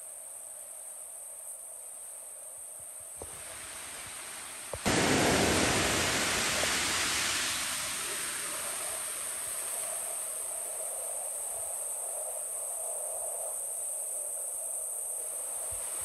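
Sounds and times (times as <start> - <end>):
insects chirping: 0.0 - 16.0
rushing river water: 3.2 - 11.5.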